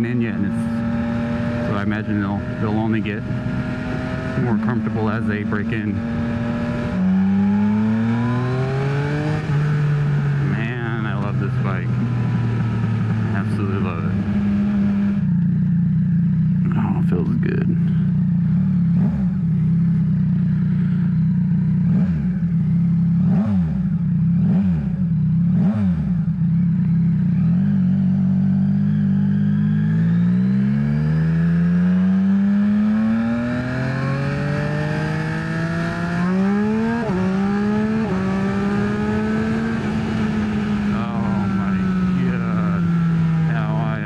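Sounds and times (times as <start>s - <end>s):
motorcycle engine accelerating: 0.0s - 44.0s.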